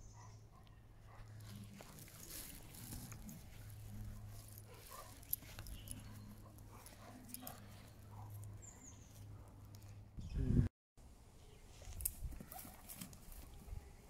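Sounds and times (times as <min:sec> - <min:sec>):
dog rolling on grass: 0:01.3 - 0:07.6.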